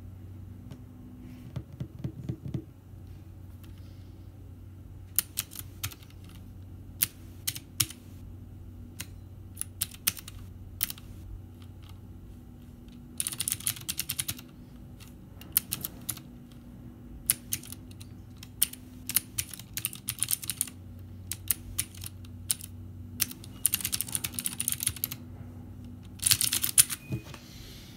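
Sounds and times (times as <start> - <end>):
clicky mechanical keyboard typing: 5.1 - 6.4, 7.0 - 8.0, 8.9 - 12.0, 13.2 - 16.6, 17.2 - 25.2, 26.0 - 27.0.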